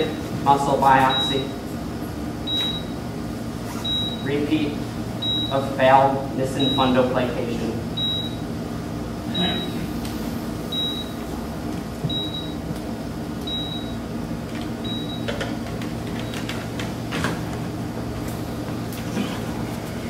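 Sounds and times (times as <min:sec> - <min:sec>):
heart monitor beeps: 0:01.1 - 0:01.4, 0:02.4 - 0:02.9, 0:03.8 - 0:04.3, 0:05.2 - 0:05.6, 0:08.0 - 0:08.4, 0:09.3 - 0:09.8, 0:10.7 - 0:11.2, 0:12.1 - 0:12.6, 0:13.5 - 0:13.9, 0:14.8 - 0:15.3.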